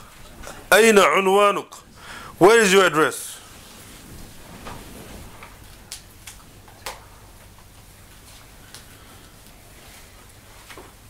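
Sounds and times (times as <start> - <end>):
low room hum: 0.0 - 11.0.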